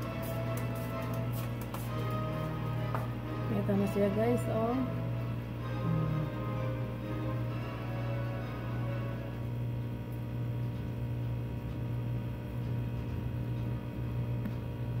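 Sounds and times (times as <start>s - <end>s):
background music: 0.0s - 9.7s
steady low hum: 0.0s - 15.0s.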